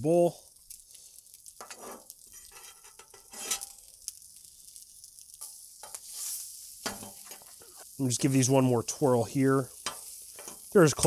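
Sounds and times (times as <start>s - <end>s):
rice sizzling on griddle: 0.0s - 11.0s
metal spatula scraping griddle: 1.6s - 3.8s, 5.4s - 7.8s, 9.8s - 10.7s.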